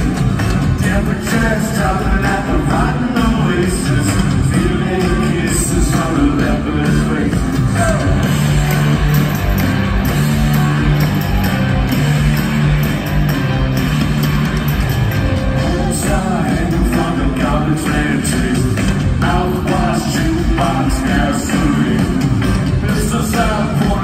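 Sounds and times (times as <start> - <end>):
live rock band playing: 0.0 - 24.0
person singing: 0.7 - 8.6, 15.5 - 24.0.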